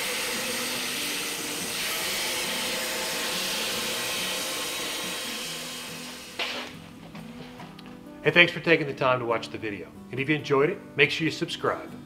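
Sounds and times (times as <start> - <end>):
bandsaw cutting timber: 0.0 - 6.8.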